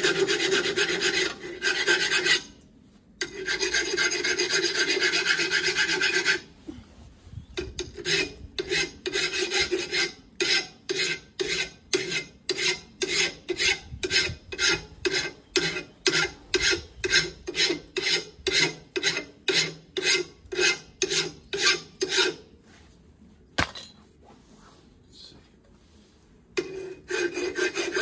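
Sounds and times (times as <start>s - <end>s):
hand file scraping metal pipe: 0.0s - 2.6s, 3.2s - 6.6s, 7.6s - 22.5s, 26.6s - 28.0s.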